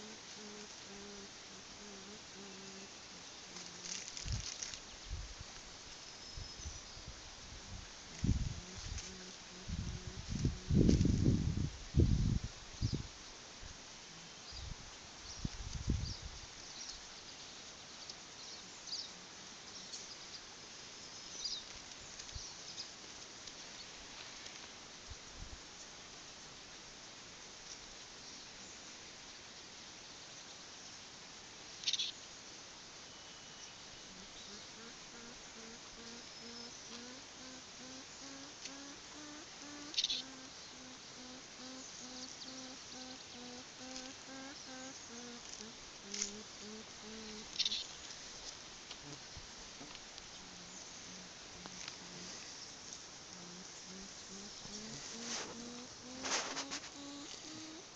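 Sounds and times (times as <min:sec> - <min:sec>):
porcupine whining hums: 0:00.0 - 0:04.0, 0:34.1 - 0:47.9, 0:53.2 - 0:57.9
brief crackle: 0:03.6 - 0:04.9
small birds chirping: 0:33.1 - 0:49.4, 0:50.2 - 0:57.9.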